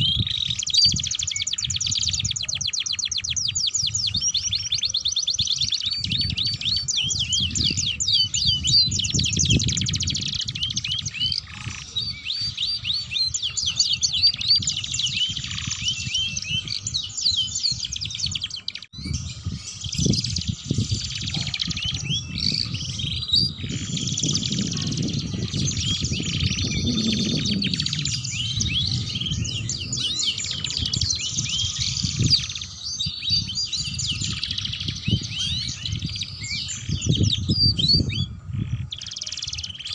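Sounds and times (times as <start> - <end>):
canaries singing trills: 0.0 - 39.9
low rumble: 25.2 - 32.8.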